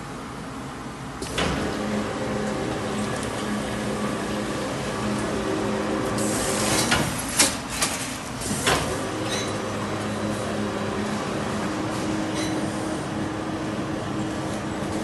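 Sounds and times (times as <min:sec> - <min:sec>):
wrapping machine humming: 0:01.2 - 0:15.0.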